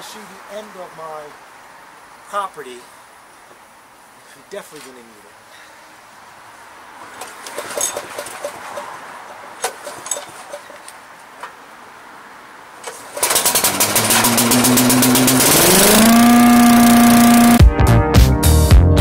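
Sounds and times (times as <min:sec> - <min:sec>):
leaf vacuum engine starting: 0:12.8 - 0:17.6.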